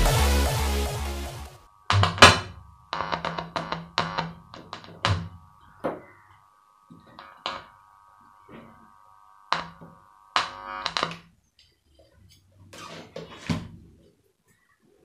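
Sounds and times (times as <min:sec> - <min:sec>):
electronic music through woofers: 0:00.0 - 0:01.7.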